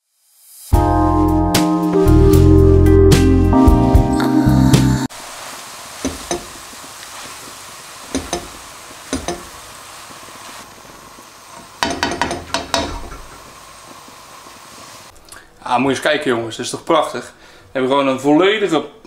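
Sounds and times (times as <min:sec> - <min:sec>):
food sizzling in a wok: 0:00.0 - 0:01.4, 0:05.0 - 0:15.1
spatula scraping and knocking pan: 0:06.0 - 0:06.6, 0:08.1 - 0:09.6, 0:11.8 - 0:13.4.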